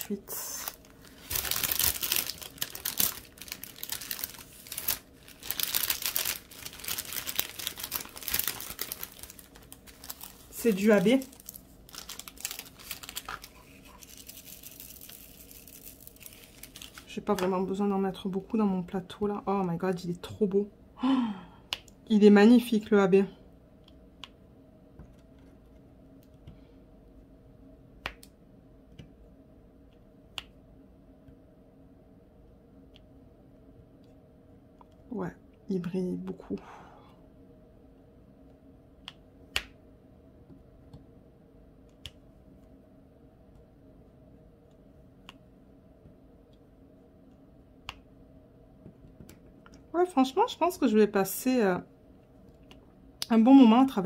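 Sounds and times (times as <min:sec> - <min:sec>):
plastic crinkling and rustling: 0:00.0 - 0:17.5
faint low hum: 0:00.0 - 0:54.0.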